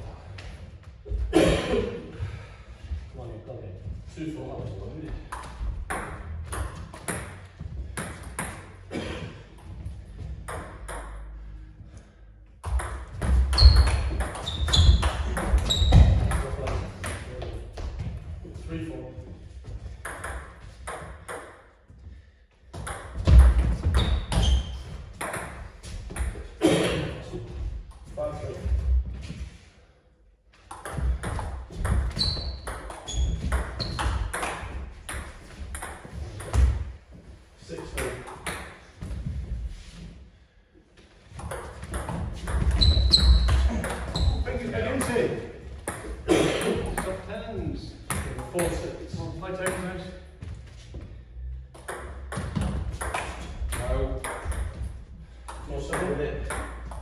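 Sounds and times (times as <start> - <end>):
table tennis ball bouncing: 5.9 - 7.4, 10.4 - 11.3, 12.6 - 17.2, 20.0 - 21.6, 22.8 - 24.5, 25.2 - 26.4, 30.7 - 36.8, 41.4 - 44.2, 51.7 - 54.8, 55.5 - 57.0
ball hits on bats and table: 10.4 - 11.2, 30.7 - 36.8, 51.8 - 54.8
shoes squeaking on wooden floor: 13.2 - 16.9, 23.2 - 25.0, 31.0 - 34.8, 41.4 - 44.7.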